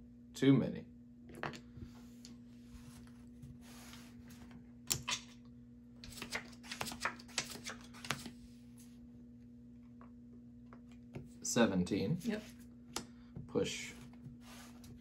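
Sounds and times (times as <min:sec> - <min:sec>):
cards sliding across felt table: 0:01.8 - 0:04.6, 0:14.3 - 0:15.0
cards being dealt with clicks: 0:06.0 - 0:08.3
steady low hum: 0:07.7 - 0:15.0.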